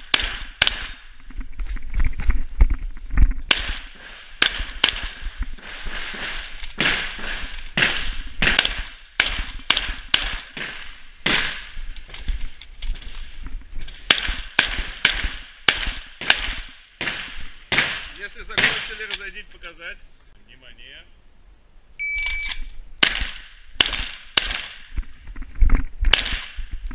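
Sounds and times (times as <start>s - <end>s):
shotgun firing: 0.0s - 1.0s, 3.4s - 11.8s, 14.0s - 19.2s, 23.0s - 24.9s, 26.1s - 26.6s.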